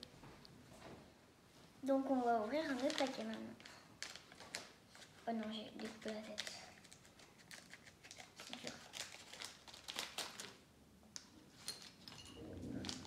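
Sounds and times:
plastic pouch crinkling: 2.6 - 10.6
scissors cutting plastic: 5.8 - 10.6.

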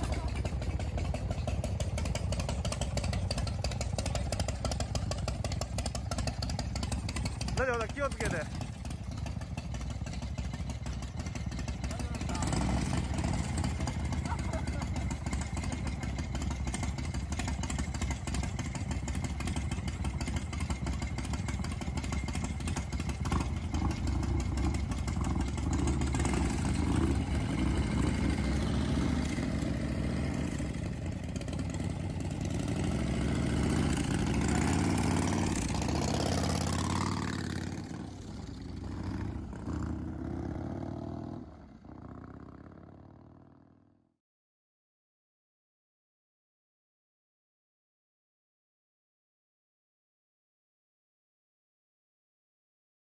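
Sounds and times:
motorcycle engine idling and revving: 0.0 - 44.2.

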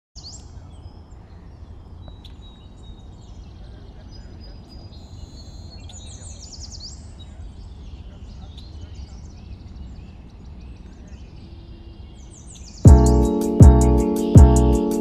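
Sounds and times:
wild birds chirping and trilling: 0.2 - 14.4
steady low rumble: 12.9 - 14.9.

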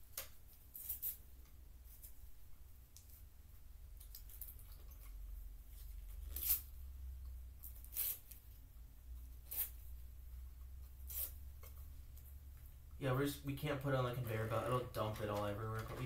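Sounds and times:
low steady hum: 0.0 - 16.0
cardboard tearing: 6.2 - 6.8.

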